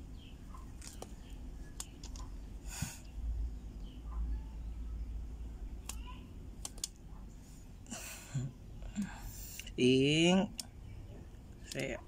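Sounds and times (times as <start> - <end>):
sharp clicks: 0.8 - 2.4, 5.8 - 7.1, 10.5 - 10.8, 11.6 - 12.0.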